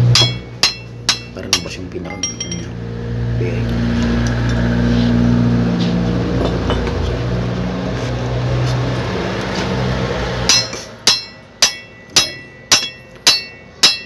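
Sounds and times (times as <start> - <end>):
hammer striking steel: 0.0 - 2.8, 10.4 - 14.0.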